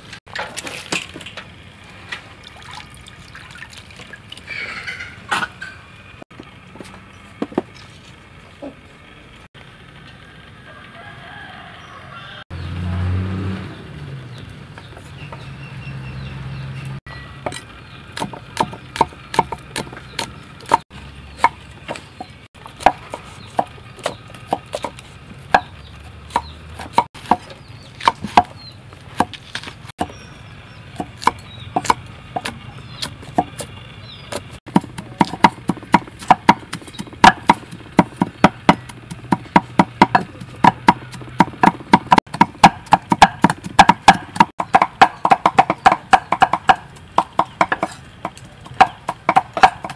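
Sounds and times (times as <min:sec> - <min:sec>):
cleavers chopping on wooden blocks: 0:17.4 - 0:30.2, 0:31.0 - 0:49.9.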